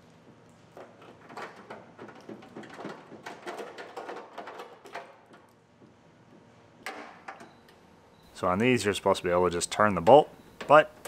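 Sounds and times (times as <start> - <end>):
wires rattling and scraping on metal: 0.7 - 5.6.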